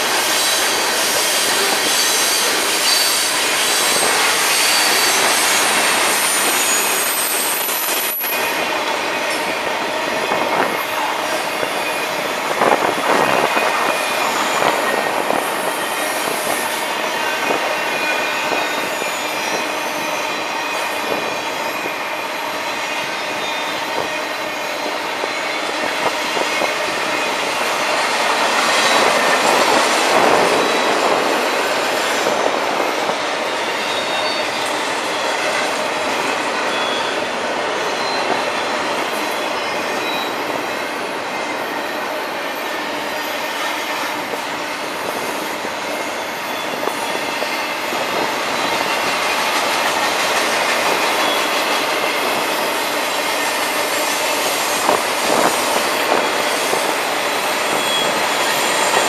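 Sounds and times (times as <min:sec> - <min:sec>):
freight train wheels rumbling: 0:00.0 - 0:59.0
high wheel squealing: 0:54.8 - 0:59.0.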